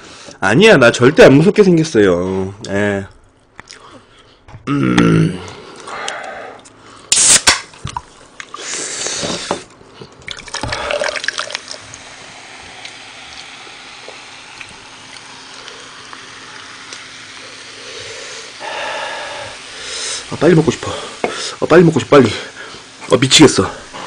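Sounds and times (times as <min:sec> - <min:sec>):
can cracked open: 0:07.1 - 0:07.9
cola pouring into cup: 0:07.7 - 0:18.2
fizzing hiss: 0:08.4 - 0:24.0.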